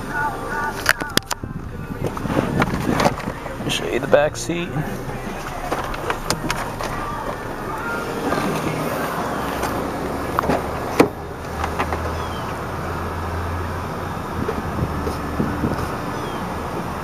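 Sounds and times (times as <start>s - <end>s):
low steady hum: 0.0s - 11.9s
car door clunk: 0.0s - 12.6s
handling noise: 0.6s - 12.6s.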